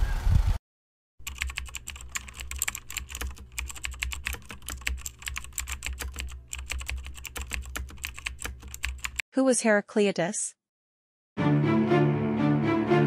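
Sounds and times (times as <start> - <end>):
keyboard typing: 1.2 - 9.2.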